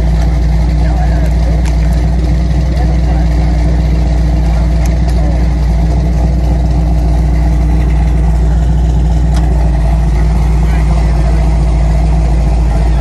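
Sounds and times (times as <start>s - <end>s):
engine idling loudly: 0.0s - 13.0s.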